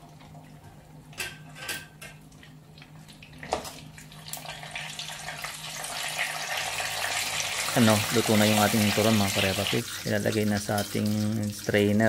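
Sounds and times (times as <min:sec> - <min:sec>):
oil sizzling in a frying pan: 0:03.4 - 0:12.0.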